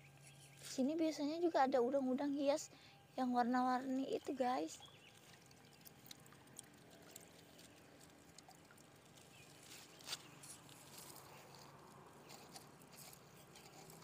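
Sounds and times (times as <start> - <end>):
water dribbling from scoop: 4.8 - 12.0.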